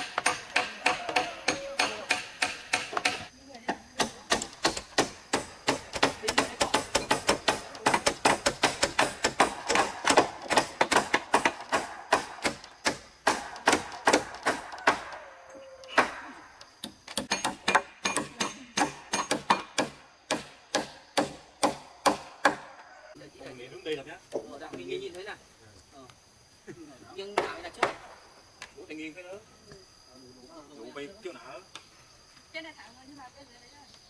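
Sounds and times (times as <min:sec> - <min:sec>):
hammers hammering quickly: 0:00.0 - 0:03.3, 0:04.0 - 0:15.1.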